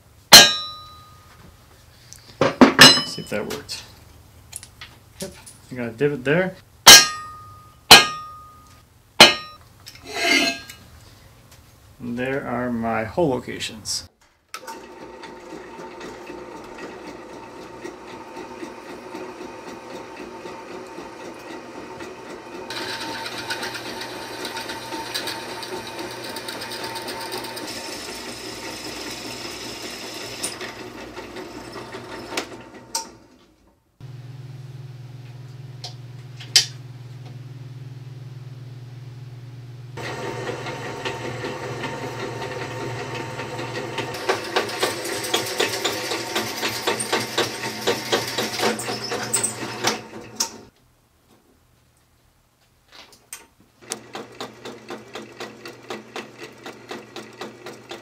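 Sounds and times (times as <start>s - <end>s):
drill press motor running: 14.6s - 33.2s, 34.0s - 50.7s, 53.8s - 58.0s
drill bit cutting steel: 22.7s - 32.4s.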